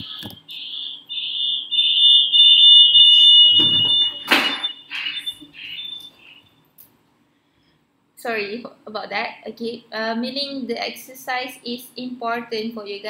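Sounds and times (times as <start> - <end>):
audio feedback howl: 2.3 - 6.7.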